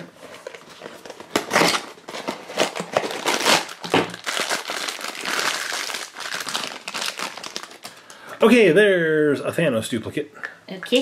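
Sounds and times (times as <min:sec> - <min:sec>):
foil bag crinkling: 0:00.3 - 0:08.2.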